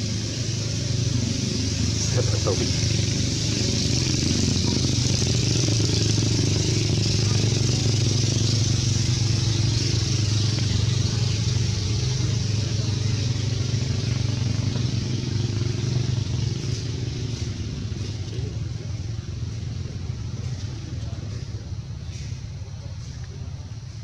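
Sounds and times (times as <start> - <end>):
engine humming: 0.0 - 24.0.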